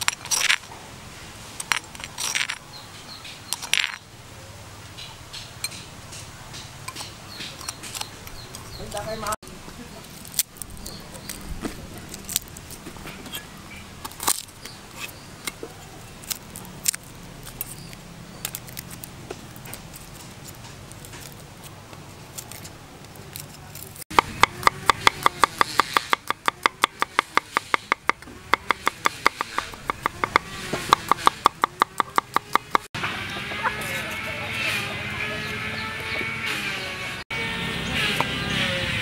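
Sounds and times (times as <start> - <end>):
garlic skins crackling: 7.0 - 32.9
cleaver chopping on wooden board: 24.1 - 32.9.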